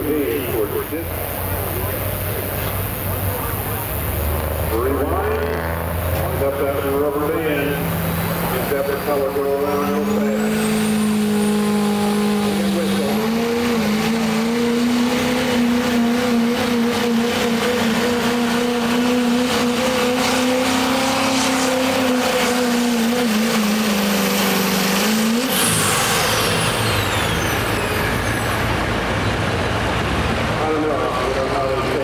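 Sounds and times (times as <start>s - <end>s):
diesel engine at full throttle: 0.0s - 32.0s
high whistle falling in pitch: 25.6s - 28.8s.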